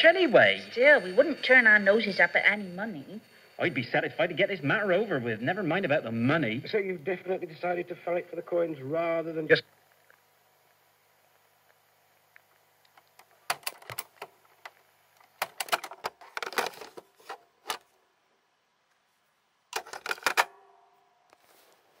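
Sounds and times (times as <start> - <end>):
faint hum: 0.0 - 22.0
mechanical clicks and clatter: 12.9 - 17.8, 19.7 - 20.6.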